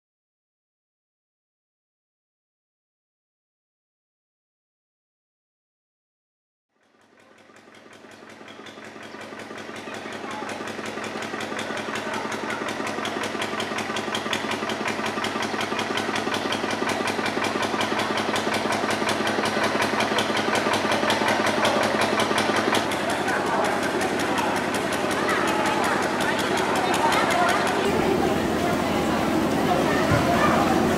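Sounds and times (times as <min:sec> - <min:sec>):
engine running with fast pulse: 0:06.8 - 0:30.9.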